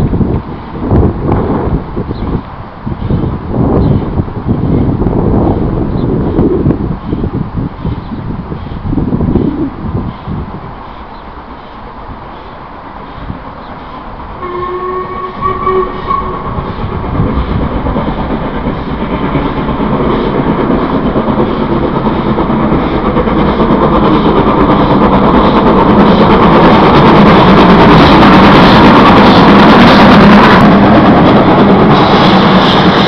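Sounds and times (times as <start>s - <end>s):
steam locomotive exhaust beats: 0.0s - 33.0s
steam whistle: 14.4s - 16.7s.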